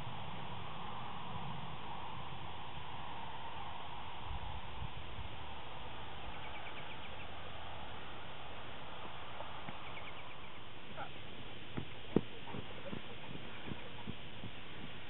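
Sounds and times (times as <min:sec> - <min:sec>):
wind rumbling on microphone: 0:00.0 - 0:15.0
faint high chirping trill: 0:06.2 - 0:07.4, 0:09.8 - 0:11.1.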